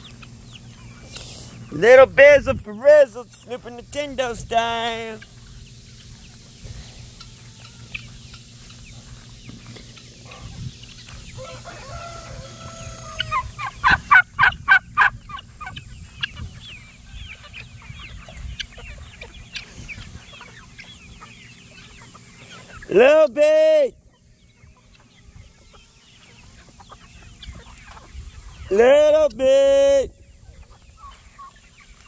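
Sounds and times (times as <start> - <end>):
chickens clucking: 0.0 - 32.0
chicken crow-like call: 11.4 - 15.1
loud quick repeated chicken calls: 11.4 - 23.4.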